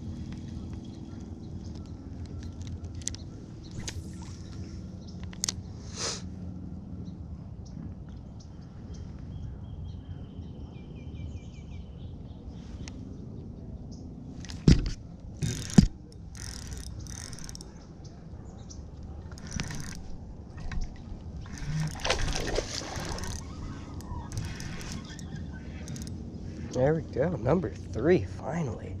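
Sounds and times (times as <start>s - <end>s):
fish splashing at water surface: 21.6s - 23.5s
faint bird chirps: 23.0s - 26.7s.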